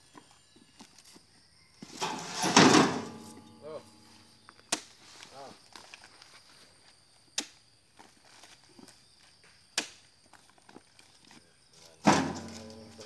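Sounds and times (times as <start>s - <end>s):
loud ringing bang on steel tray: 2.0s - 4.0s.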